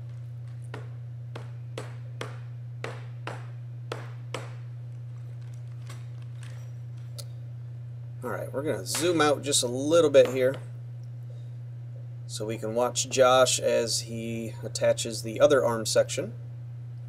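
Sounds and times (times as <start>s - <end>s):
steady low hum: 0.0s - 17.0s
rubber mallet tapping wood: 0.7s - 4.6s.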